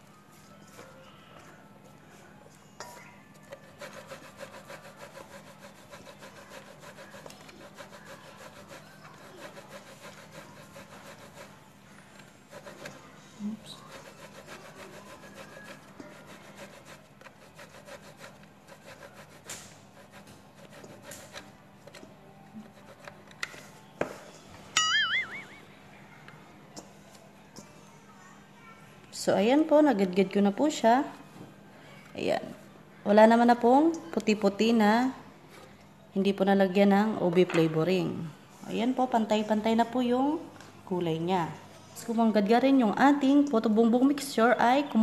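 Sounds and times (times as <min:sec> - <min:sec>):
dough rasping on metal grater: 0:03.3 - 0:11.6, 0:12.5 - 0:22.0.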